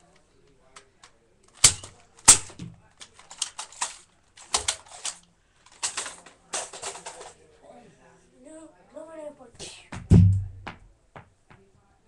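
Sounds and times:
quick plastic clicking: 0:00.8 - 0:07.3
toy blaster plastic clacks: 0:01.0 - 0:07.4.

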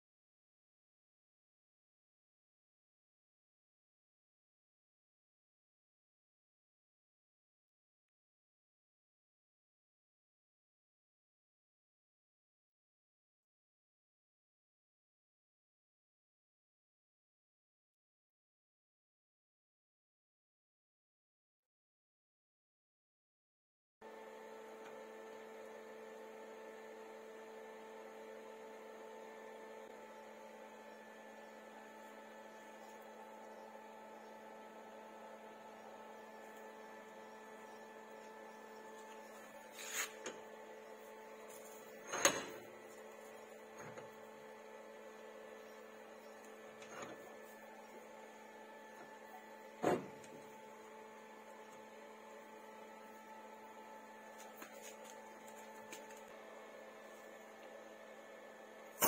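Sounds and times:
electrical hum with tones: 0:24.0 - 0:59.0.

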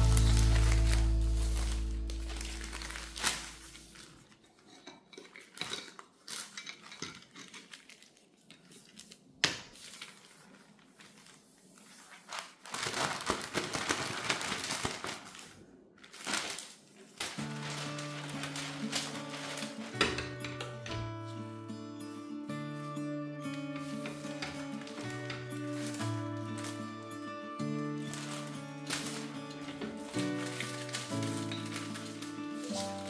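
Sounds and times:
background music note: 0:00.0 - 0:04.1
plastic bags rustling: 0:00.0 - 0:33.0.

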